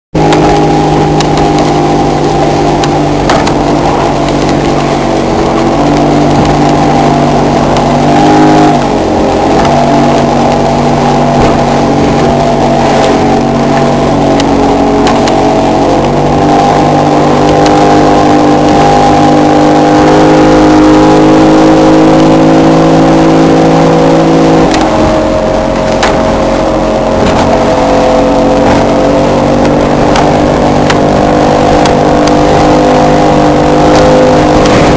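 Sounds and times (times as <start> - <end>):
outboard motor droning: 0.2 - 34.9
hull knocking on waves: 10.4 - 13.4.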